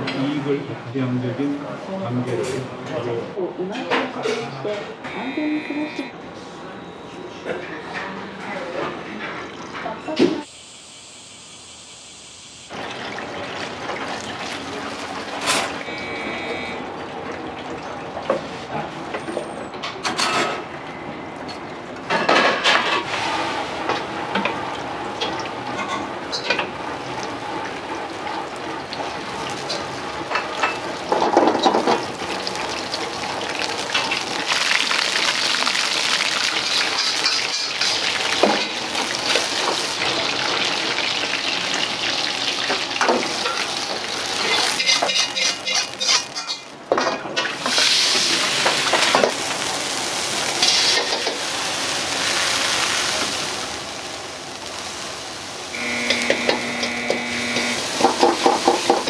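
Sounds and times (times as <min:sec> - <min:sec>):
food sizzling in hot oil: 0:10.4 - 0:16.6, 0:25.0 - 0:59.0
ladle clanking: 0:43.0 - 0:47.9
knife and utensils clinking: 0:44.4 - 0:47.5.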